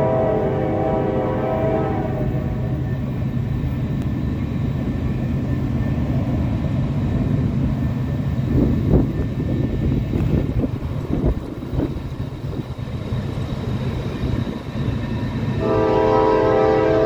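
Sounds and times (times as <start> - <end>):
train horn: 0.0 - 2.8, 15.6 - 17.0
locomotive rumble: 0.0 - 17.0.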